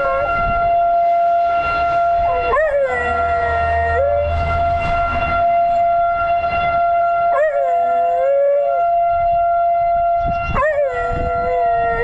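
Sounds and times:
warning siren steady tone: 0.0 - 12.0
small dog howling: 2.3 - 4.3, 10.5 - 12.0.

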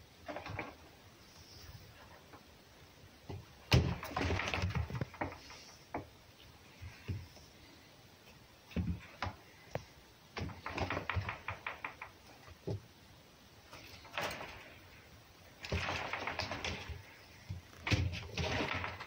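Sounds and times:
thud: 15.6 - 17.1.

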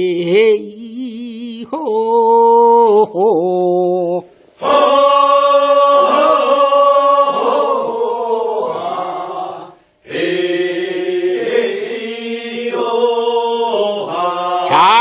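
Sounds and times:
group singing unaccompanied: 4.6 - 15.0.

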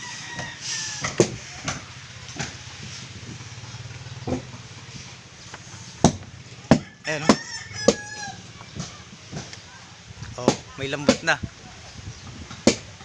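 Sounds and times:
hammering on wood: 0.4 - 2.6, 6.0 - 8.2, 10.4 - 11.4, 12.5 - 13.0
small engine running: 1.4 - 6.8.

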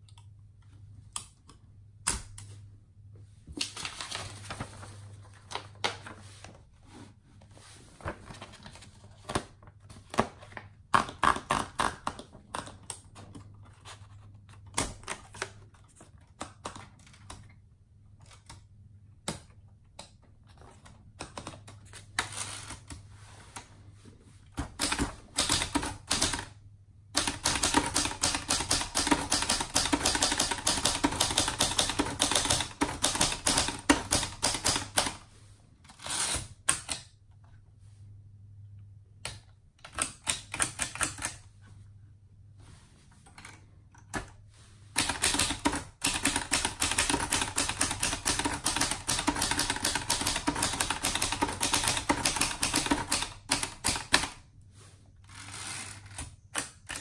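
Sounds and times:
typewriter keystrokes: 24.6 - 26.5, 27.2 - 35.2, 45.0 - 54.4.

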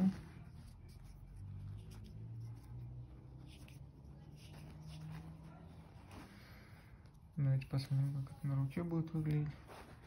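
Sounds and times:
strap scratchy rubbing: 0.0 - 6.4.

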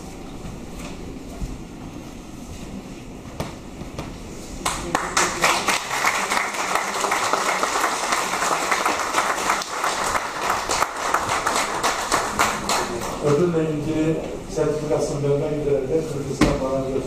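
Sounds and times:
audience applauding: 4.6 - 13.2.

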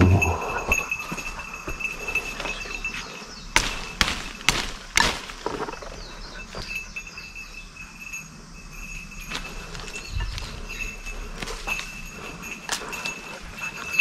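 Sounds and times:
sticks snapping: 3.6 - 5.6.

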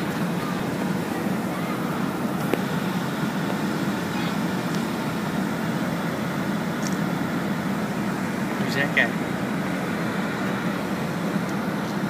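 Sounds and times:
airplane cabin drone: 0.0 - 12.0.

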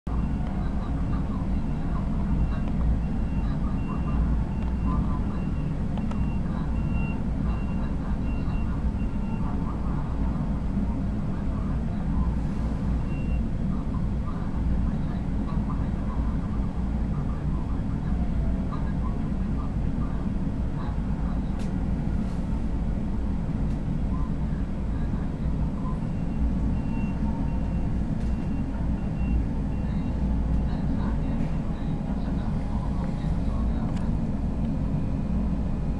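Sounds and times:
diesel machinery rumbling: 0.1 - 35.9
reversing alarm beeping: 1.6 - 9.5, 13.0 - 13.4, 25.9 - 30.6
faint high beeping: 25.9 - 30.7.

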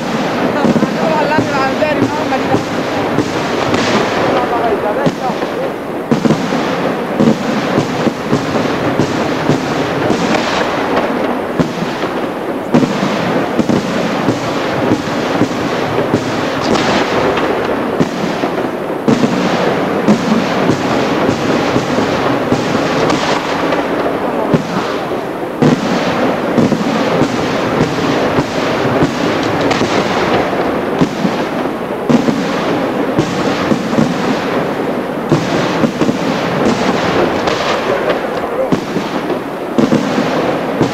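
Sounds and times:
fireworks shells bursting: 0.0 - 40.9.

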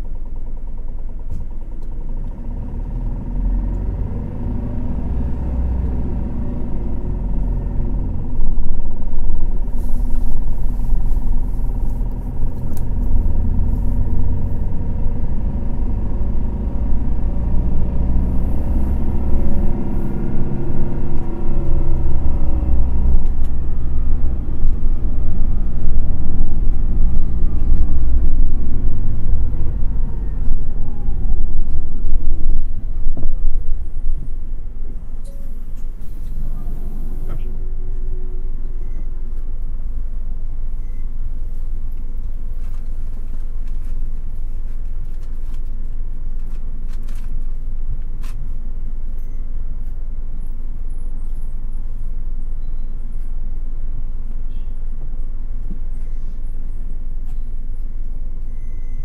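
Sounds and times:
diesel bus engine revving: 0.0 - 45.0
low road rumble: 0.0 - 59.0.

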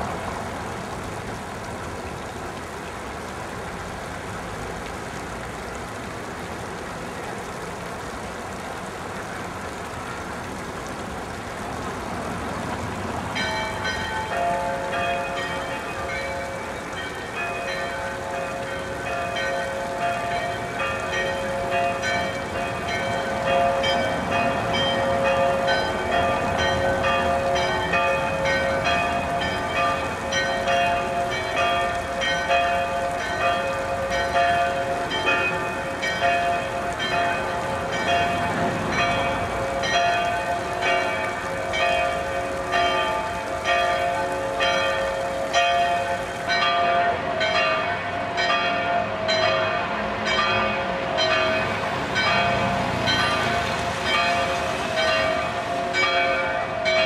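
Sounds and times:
church bells ringing: 13.3 - 57.0.

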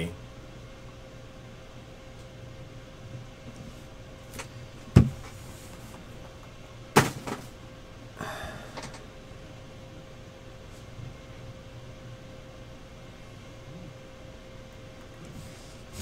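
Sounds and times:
knocks on desktop: 5.0 - 5.2.

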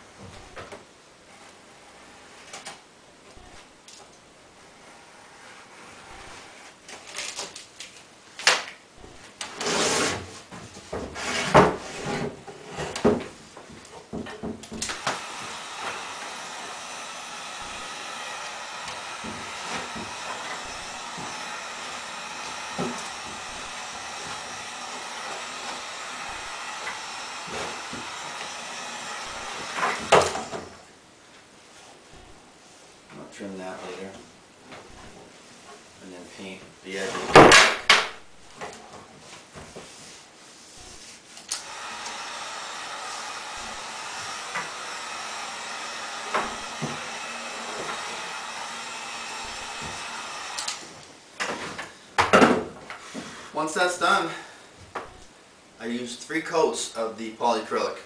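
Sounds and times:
heat gun running: 5.8 - 6.7, 14.7 - 30.9, 32.1 - 32.5, 34.9 - 35.2, 40.8 - 51.1.

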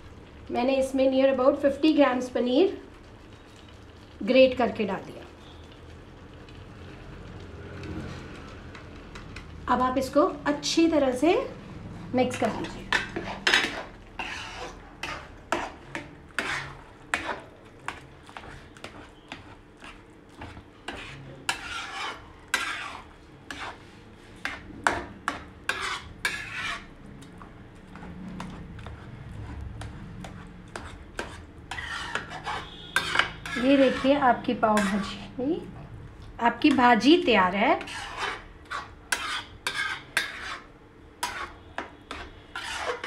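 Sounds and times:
metal spatula scraping a pan: 12.2 - 27.2, 28.0 - 35.4, 36.6 - 43.0.

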